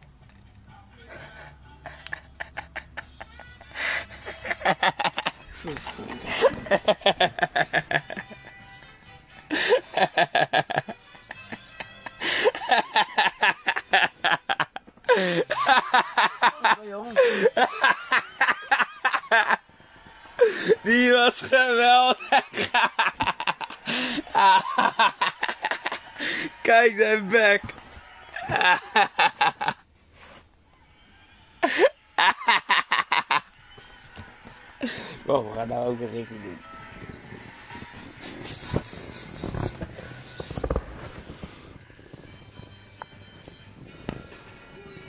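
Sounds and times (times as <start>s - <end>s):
boys giggling: 1.0s - 8.8s, 9.5s - 29.8s, 31.6s - 33.6s.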